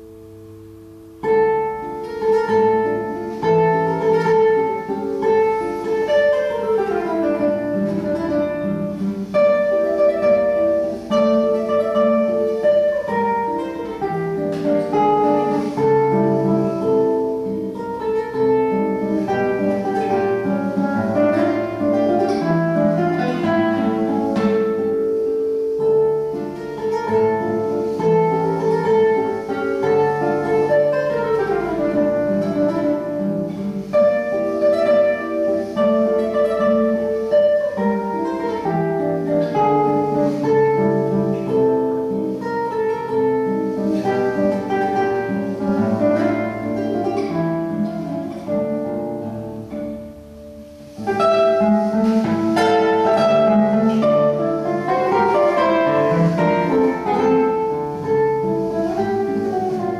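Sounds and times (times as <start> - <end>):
classical guitar fingerpicking: 0.0 - 59.9.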